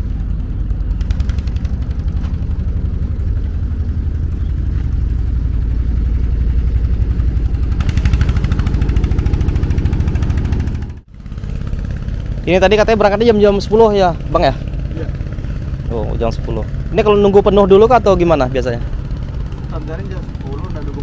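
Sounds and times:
outboard motors idling: 0:00.0 - 0:21.0.

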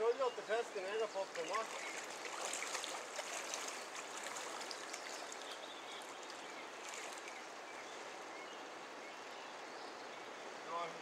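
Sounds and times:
river current rushing: 0:00.8 - 0:09.0.

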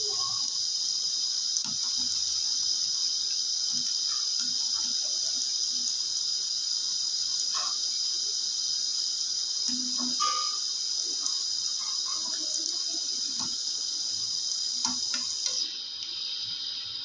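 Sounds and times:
food deep-frying in hot oil: 0:00.0 - 0:17.0
metal spoon knocking in pan: 0:09.7 - 0:10.5.

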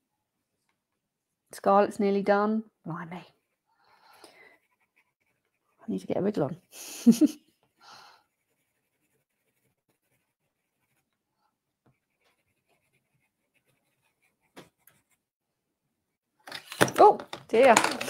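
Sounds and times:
pencil scratching on paper: 0:03.3 - 0:06.9, 0:07.6 - 0:15.4.

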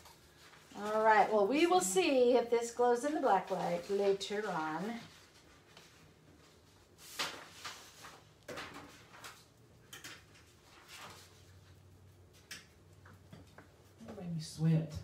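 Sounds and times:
paintbrush scuffs and rustles: 0:00.0 - 0:09.6, 0:10.4 - 0:12.5.

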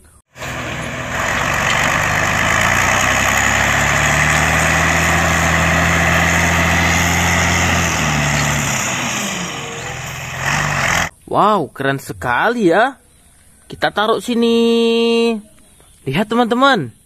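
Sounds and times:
diesel truck engine revving: 0:00.3 - 0:11.1.

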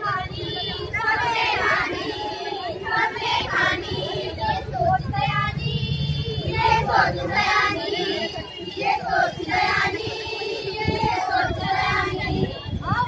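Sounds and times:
young women singing together: 0:00.0 - 0:13.0.

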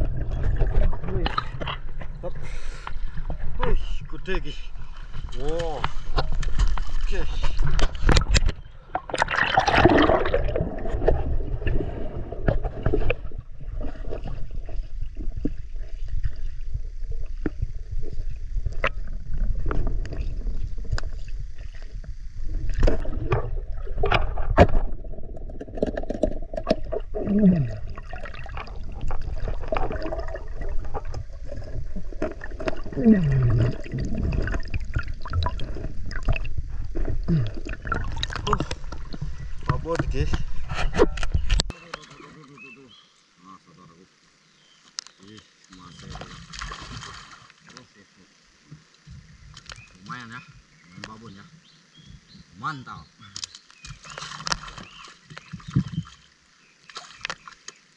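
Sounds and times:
water gurgling underwater: 0:00.0 - 0:41.7, 0:53.9 - 0:56.3.

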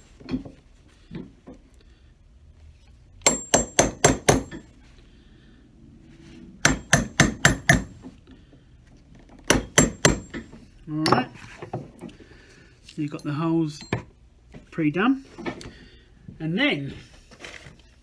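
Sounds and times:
hammer tapping steel punch: 0:03.2 - 0:04.6, 0:06.6 - 0:07.9, 0:09.5 - 0:11.3.

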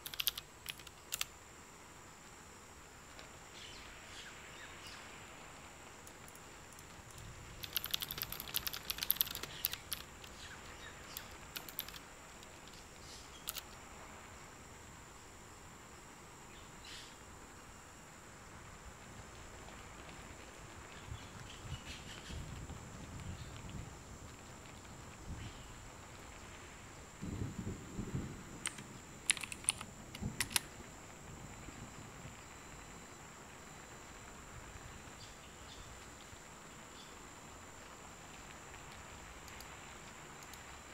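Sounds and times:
computer keyboard typing: 0:00.0 - 0:01.3, 0:06.0 - 0:10.4, 0:11.1 - 0:12.8, 0:13.4 - 0:13.7, 0:28.6 - 0:30.7
faint steady hiss: 0:00.0 - 0:40.9.

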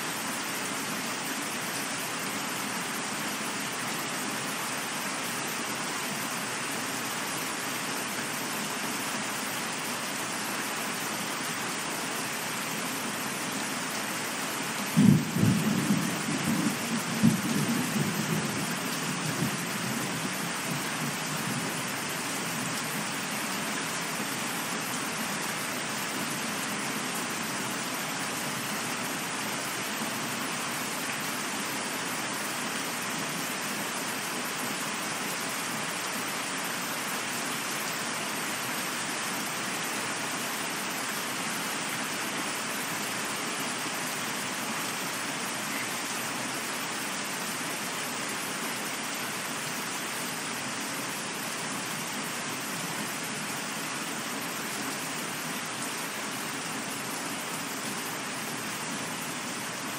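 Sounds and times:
steady rain falling: 0:00.0 - 0:59.9
thunder crack and rumble: 0:15.0 - 0:18.6.

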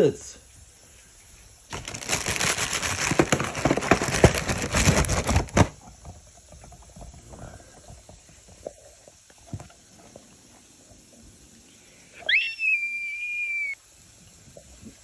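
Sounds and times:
cracker box crinkling: 0:01.7 - 0:05.9.

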